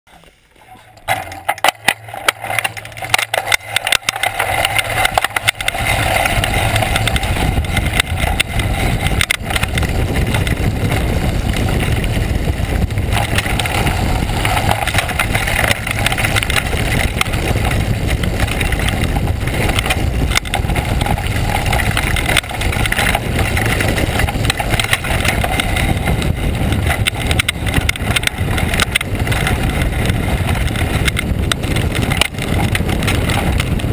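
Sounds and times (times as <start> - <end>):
bike rattling and knocking: 0.1 - 33.9
bike tyres rumbling on gravel: 0.1 - 33.9.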